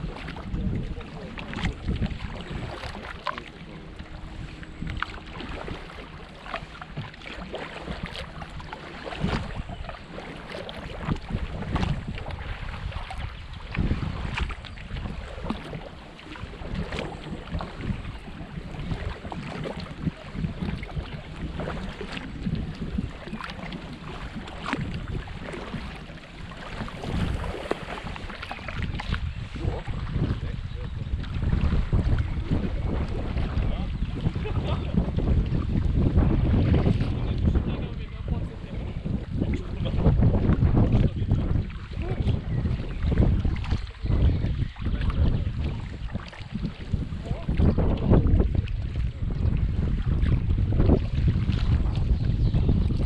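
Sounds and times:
paddle strokes in water: 0.0 - 53.0
wind rumble on microphone: 0.0 - 53.0
small splashes and drips: 0.2 - 4.1, 18.9 - 29.2.

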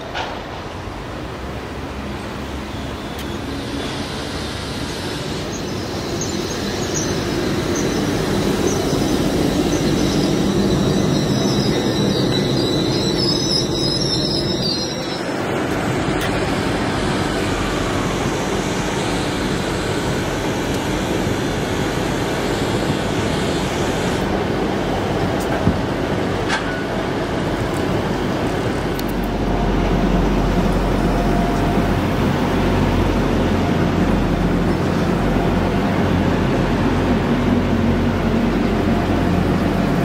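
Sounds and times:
train rumble: 0.0 - 40.0
high-pitched brake squeal: 2.6 - 15.3.

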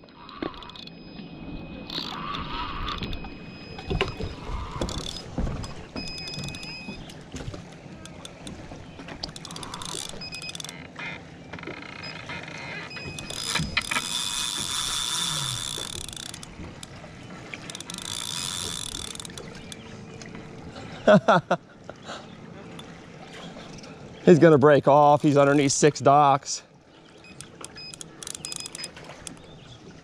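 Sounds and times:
fishing reel ratchet clicking: 9.3 - 10.8, 13.2 - 16.5, 17.6 - 19.6, 27.3 - 29.3.

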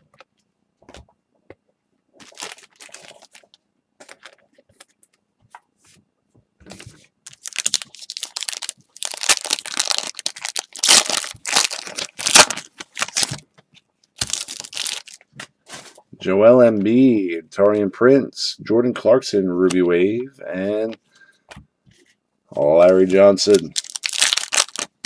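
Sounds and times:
plastic wrapping crinkling and tearing: 2.1 - 5.0, 6.7 - 13.4, 14.2 - 16.0, 22.8 - 25.0.

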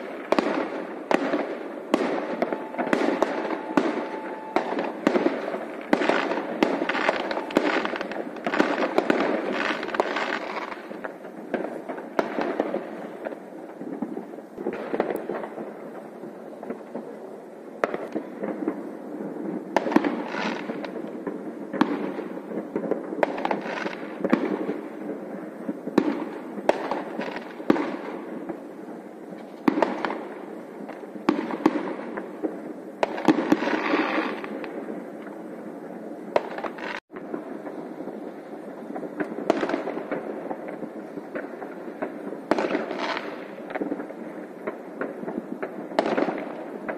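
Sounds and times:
sharp firework bangs: 0.0 - 17.0, 17.8 - 28.6, 38.8 - 46.9
distant fireworks crackle and rumble: 0.0 - 46.9.

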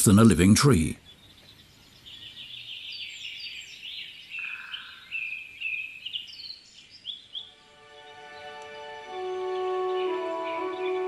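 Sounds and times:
songbirds singing: 0.0 - 11.0
soft music: 7.4 - 11.0.

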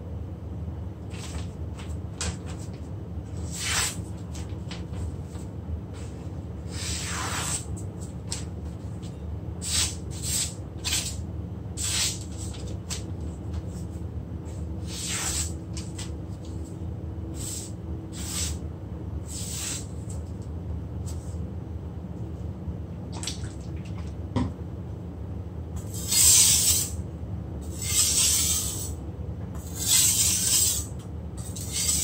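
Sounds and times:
steady low hum: 0.0 - 32.0
cleaver slicing paper swishes: 3.4 - 5.4, 6.0 - 8.4, 9.6 - 11.2, 11.8 - 13.0, 14.8 - 16.1, 29.7 - 30.9.

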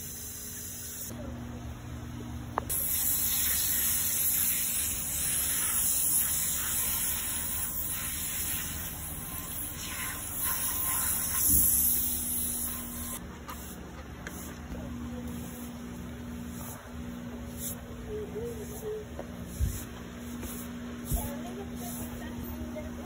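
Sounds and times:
hose spray hissing: 2.7 - 14.6, 18.4 - 22.3.

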